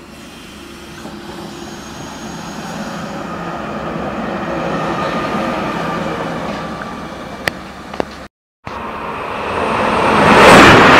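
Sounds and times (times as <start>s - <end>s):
thin high whine: 0.0s - 7.4s
electric locomotive passing: 0.0s - 10.9s.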